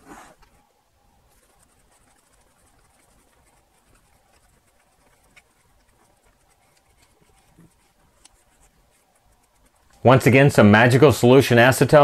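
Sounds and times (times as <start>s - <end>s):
tissue rubbing on rubber keypad: 1.2s - 10.4s.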